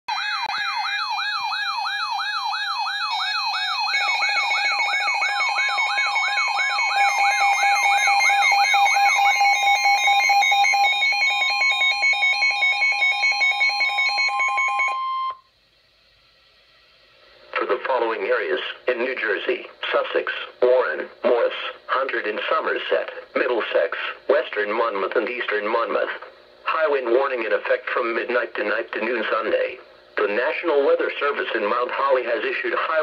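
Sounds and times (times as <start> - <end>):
siren-like rising sweep: 0.1 - 15.3
pulsing beep: 3.2 - 15.5.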